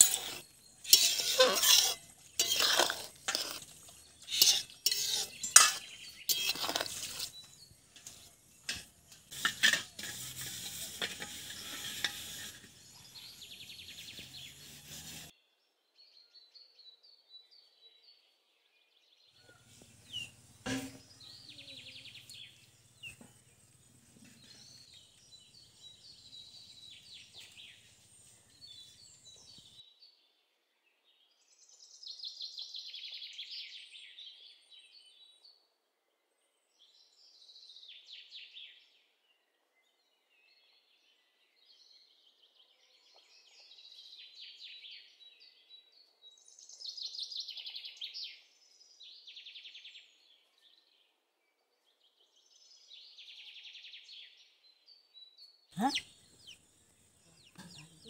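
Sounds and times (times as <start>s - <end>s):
curry bubbling: 0.0s - 7.4s
metal ladle scraping a pot: 0.0s - 15.3s, 20.6s - 21.2s
faint bird chirps: 55.3s - 58.0s.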